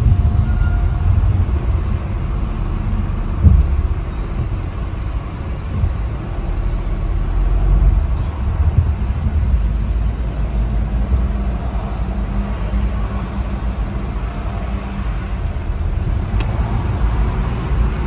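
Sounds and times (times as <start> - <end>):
car rumbling at low speed: 0.0 - 18.0
thump: 3.4 - 3.8.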